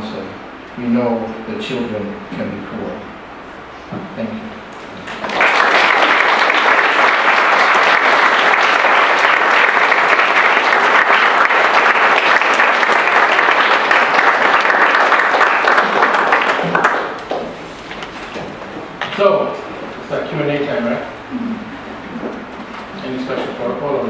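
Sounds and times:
audience applauding: 0:05.0 - 0:17.6.

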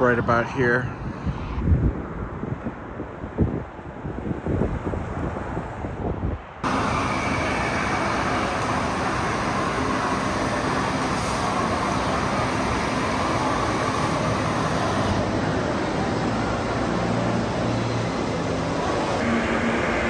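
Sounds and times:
wind gusting on microphone: 0:00.0 - 0:19.6
car cabin engine noise: 0:05.6 - 0:20.0.

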